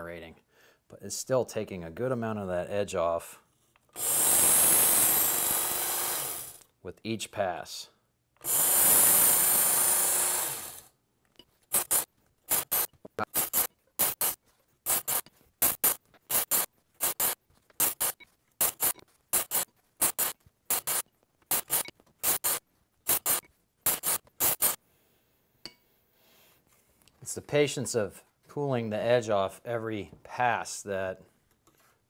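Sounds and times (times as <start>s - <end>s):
belt sharpener grinding knife: 11.7s - 24.8s.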